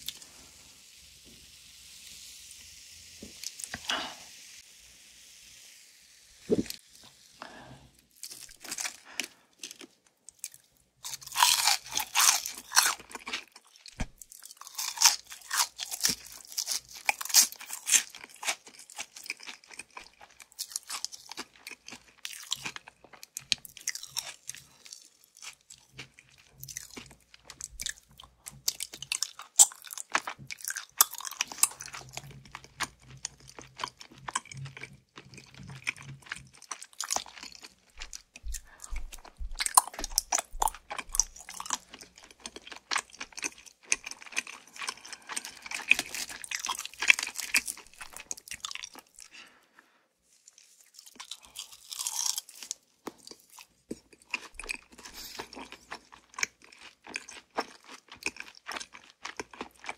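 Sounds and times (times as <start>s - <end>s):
faint hiss: 0.0s - 8.1s
crunching fried chicken: 7.4s - 49.5s, 50.3s - 59.9s.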